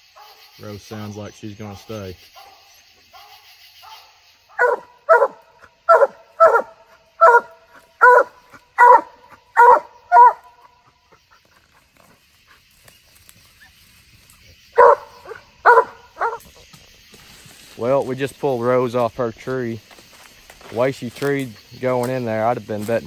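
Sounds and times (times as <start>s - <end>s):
dog barking: 1.7s - 10.7s, 14.8s - 16.4s.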